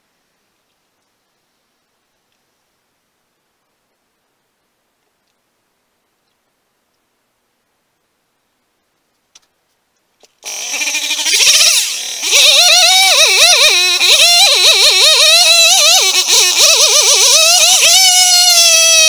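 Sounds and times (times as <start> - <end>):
chainsaw revving and cutting wood: 10.2 - 19.0.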